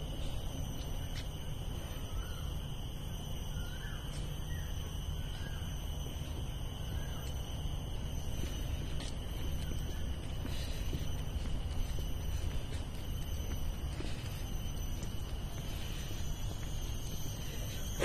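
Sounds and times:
steady low rumble: 0.0 - 3.8, 4.4 - 18.0
thin steady high tone: 0.0 - 18.0
faint bird chirps: 0.1 - 13.0.

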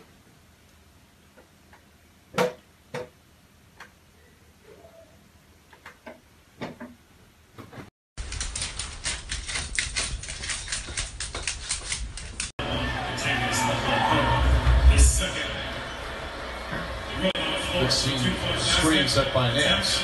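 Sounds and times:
rapid irregular clicking and tapping: 7.7 - 12.5.

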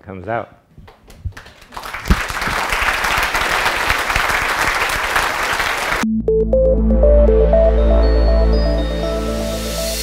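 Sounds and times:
audience applauding: 1.1 - 6.0.

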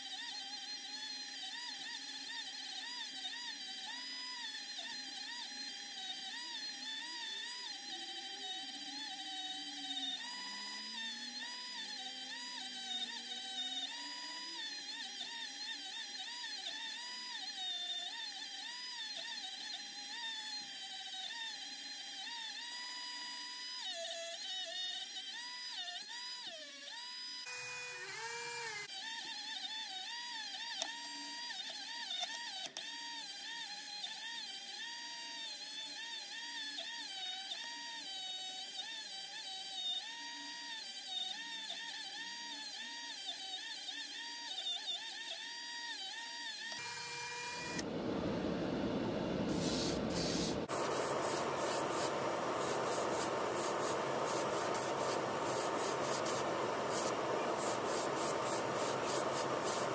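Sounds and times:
rotary tool motor whine: 0.0 - 59.9
wire brush on metal: 49.5 - 59.9.

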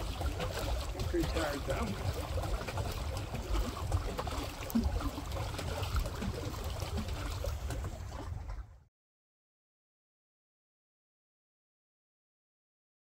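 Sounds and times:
water sloshing against a boat: 0.0 - 8.9.

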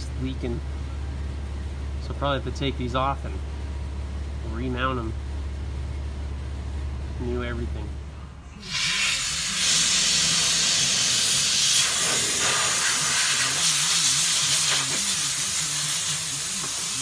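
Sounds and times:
compressed air hissing into tire: 8.6 - 17.0.

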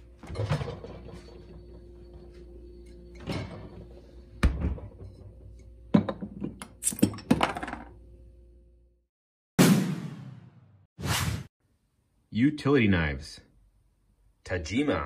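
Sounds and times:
bottle cap opened on metal opener: 6.1 - 7.7.

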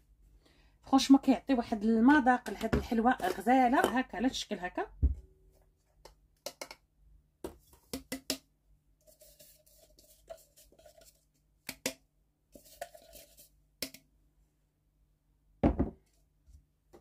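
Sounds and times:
plastic bowl tapping and clicking: 6.0 - 8.5, 11.6 - 12.0.

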